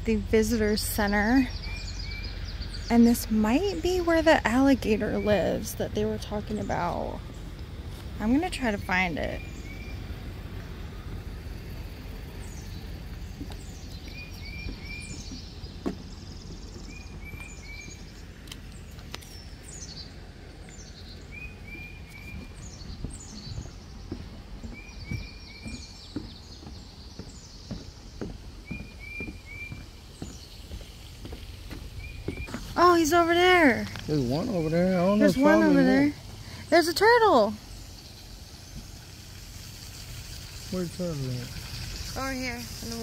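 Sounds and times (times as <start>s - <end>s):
low rumble: 0.0s - 35.2s
songbirds calling: 0.0s - 43.0s
footsteps on wooden boardwalk: 12.5s - 34.2s.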